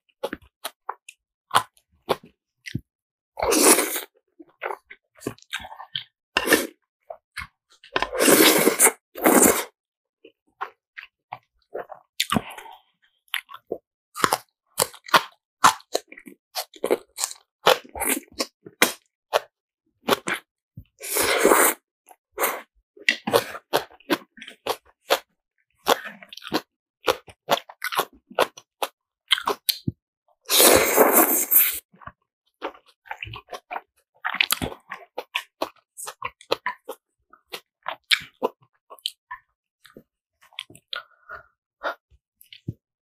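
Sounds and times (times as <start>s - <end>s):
slurping noodles: 3.4s - 5.8s, 6.4s - 6.8s, 8.0s - 9.8s, 20.1s - 25.2s, 30.4s - 31.9s
wet chewing and crunching: 13.3s - 20.5s, 23.0s - 30.6s, 31.2s - 42.8s.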